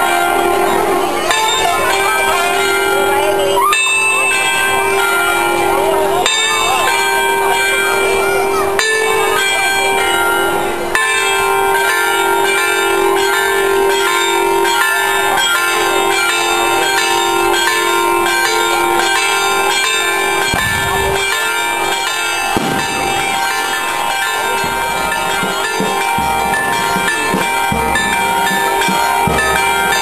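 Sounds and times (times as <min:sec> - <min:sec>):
church bells pealing: 0:00.0 - 0:30.0.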